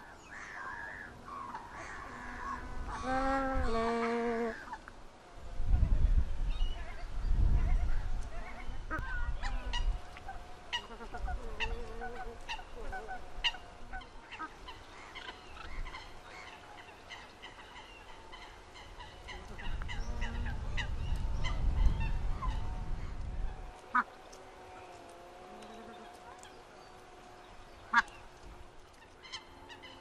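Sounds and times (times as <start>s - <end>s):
geese honking: 8.4s - 22.7s, 23.6s - 26.8s, 27.5s - 30.0s.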